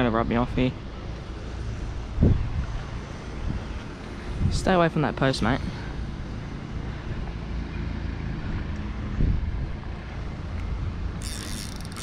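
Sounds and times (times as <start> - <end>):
wind buffeting microphone: 1.6 - 4.8, 8.3 - 12.0.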